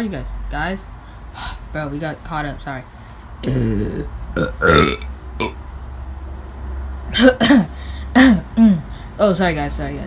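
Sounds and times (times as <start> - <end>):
person burping: 3.4 - 5.6.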